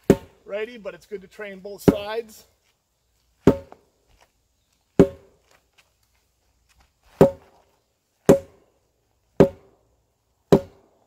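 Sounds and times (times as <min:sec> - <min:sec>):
wooden sword striking tyres: 0:00.0 - 0:00.4, 0:03.4 - 0:03.9, 0:05.0 - 0:05.4, 0:07.1 - 0:08.7, 0:09.4 - 0:09.8, 0:10.5 - 0:11.0.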